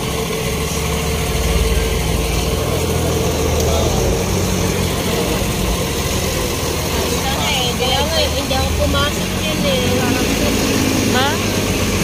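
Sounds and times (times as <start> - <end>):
truck engine running: 0.0 - 12.0.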